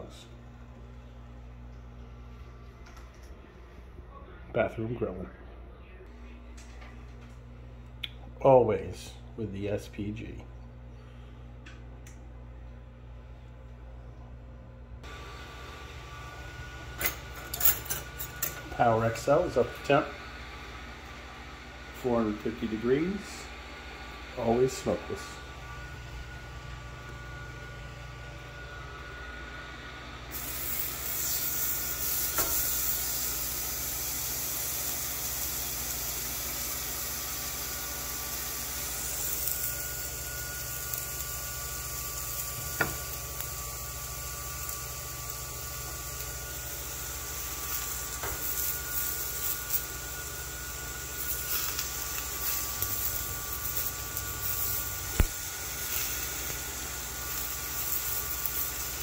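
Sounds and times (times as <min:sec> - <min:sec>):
faint hum: 0:00.0 - 0:58.9
meat sizzling on a grill: 0:30.3 - 0:59.0.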